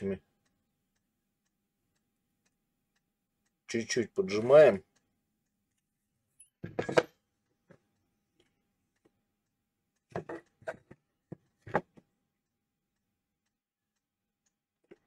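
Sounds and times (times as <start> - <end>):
clicks and knocks on wooden workbench: 6.6 - 7.2, 10.1 - 12.1.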